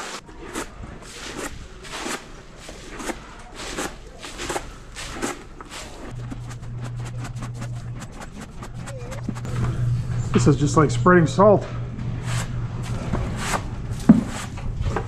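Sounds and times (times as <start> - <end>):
low steady hum: 0.1 - 15.0
footsteps on concrete: 0.6 - 9.5.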